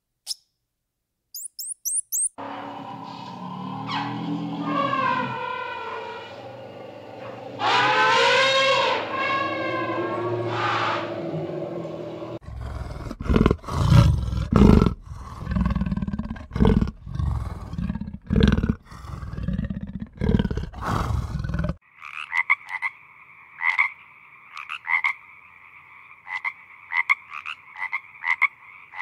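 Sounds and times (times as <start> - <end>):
big cat growling and snarling: 3.2 - 21.8
frog croaking: 21.7 - 29.0.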